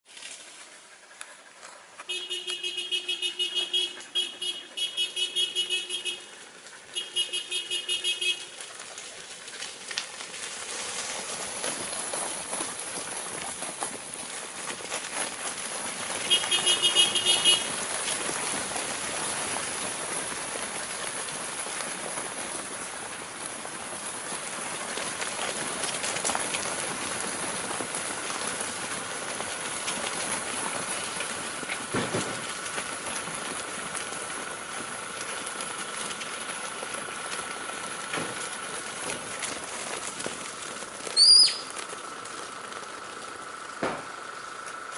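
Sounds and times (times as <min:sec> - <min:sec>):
hooves clattering on gravel: 0:00.1 - 0:44.9
high whistle: 0:41.2 - 0:41.7.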